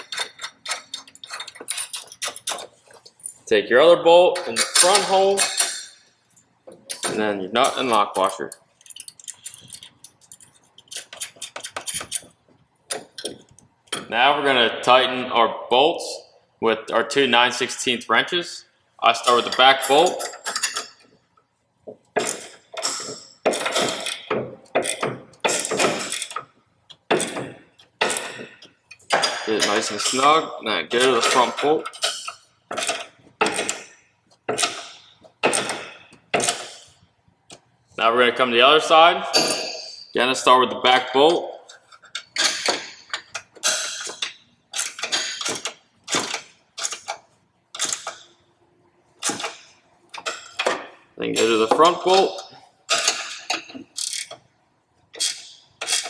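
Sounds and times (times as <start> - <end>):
wrench clicking on bolt: 0.0 - 2.6, 8.8 - 12.3, 41.7 - 48.2, 52.9 - 54.4, 55.2 - 56.0
wrenches clinking on bolt: 0.0 - 3.5, 4.4 - 14.1, 19.2 - 21.2, 22.2 - 36.9, 39.3 - 40.2, 41.2 - 48.4, 49.2 - 54.4, 55.1 - 56.0.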